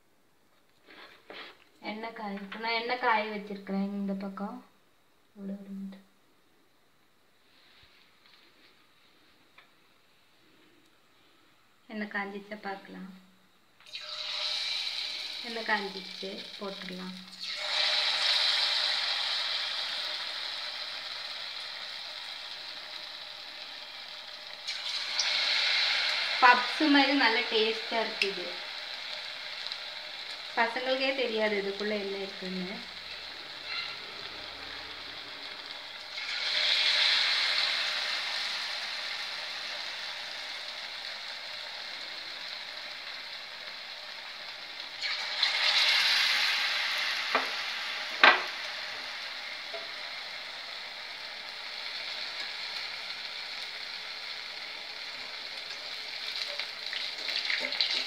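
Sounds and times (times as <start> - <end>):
food deep-frying in hot oil: 13.8 - 58.0.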